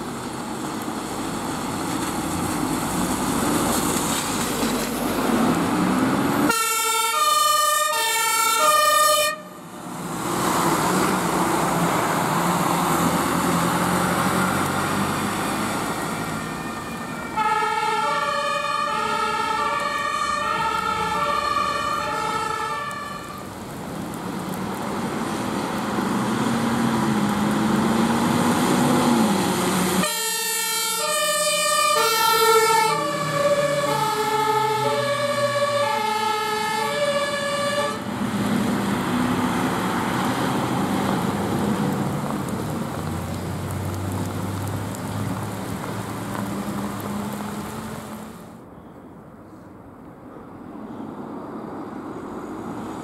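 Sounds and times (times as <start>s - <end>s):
engine and road noise: 0.0s - 53.0s
two-tone siren: 6.5s - 9.6s, 16.3s - 23.4s, 30.0s - 38.1s.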